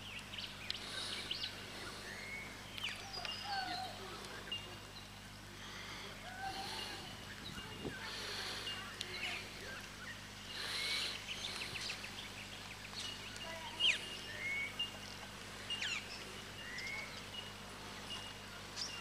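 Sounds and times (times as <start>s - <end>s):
birds chirping and whistling: 0.0s - 19.0s
faint low hum: 0.0s - 19.0s.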